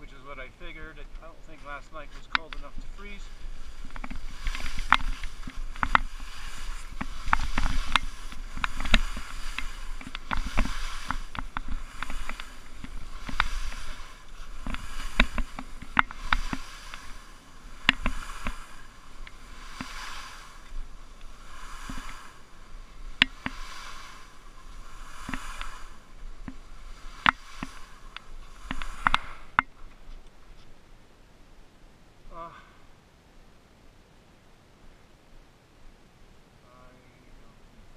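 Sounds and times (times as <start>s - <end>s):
skis scraping over snow: 0.0s - 30.8s
sharp clicks and knocks: 2.2s - 2.7s, 3.8s - 17.2s.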